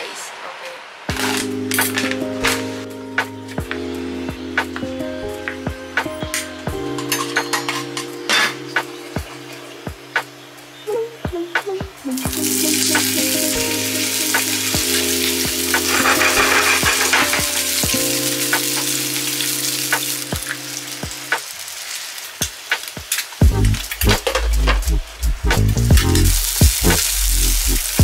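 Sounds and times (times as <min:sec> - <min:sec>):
sausage sizzling in hot oil: 0:12.2 - 0:28.0.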